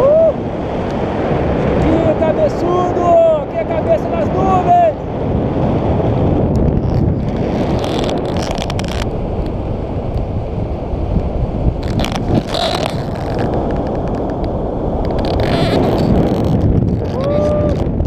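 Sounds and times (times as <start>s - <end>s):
wind buffeting microphone: 0.0s - 18.0s
fabric flaps and rustles: 6.8s - 9.1s, 11.8s - 14.4s.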